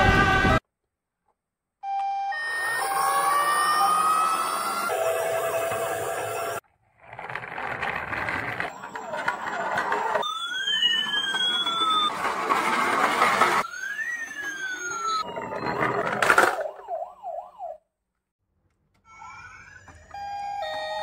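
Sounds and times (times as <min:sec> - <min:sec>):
toy electronic siren wailing: 0:01.9 - 0:06.6, 0:08.7 - 0:17.8, 0:19.0 - 0:21.0
warbling siren yelp: 0:01.9 - 0:06.6, 0:09.0 - 0:12.2, 0:13.6 - 0:17.9
toys running along wooden board: 0:02.9 - 0:16.9
faint electronic toy tones: 0:19.1 - 0:21.0.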